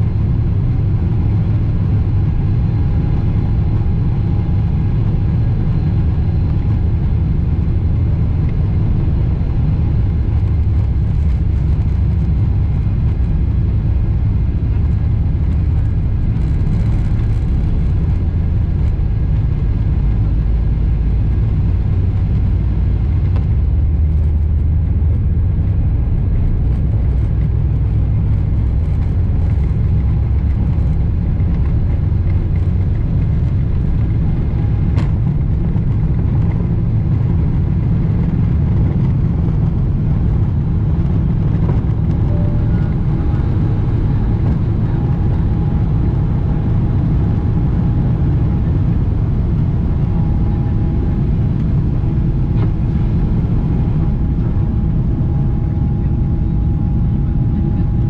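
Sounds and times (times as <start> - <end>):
airliner cabin engine rumble: 0.0 - 58.0.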